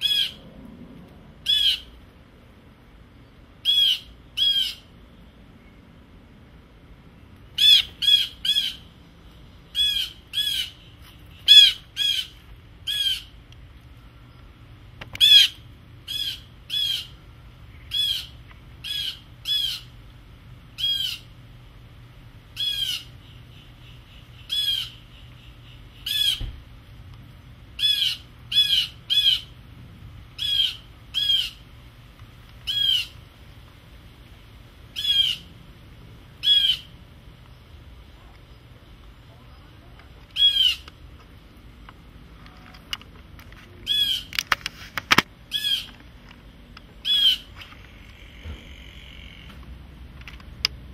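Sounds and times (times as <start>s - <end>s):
blue jay harsh jeer calls: 0.0s - 0.4s, 1.4s - 2.0s, 3.6s - 4.9s, 7.6s - 8.9s, 9.7s - 13.4s, 15.2s - 17.2s, 17.8s - 20.0s, 20.8s - 21.3s, 22.5s - 26.5s, 27.8s - 29.6s, 30.4s - 31.6s, 32.6s - 33.2s, 34.9s - 35.5s, 36.4s - 37.0s, 40.3s - 40.9s, 43.8s - 44.3s, 45.4s - 46.0s, 47.0s - 49.5s.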